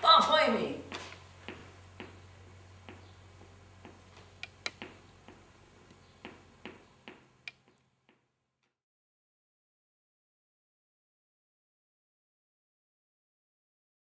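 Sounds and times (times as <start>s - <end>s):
low steady hum: 0.0s - 8.6s.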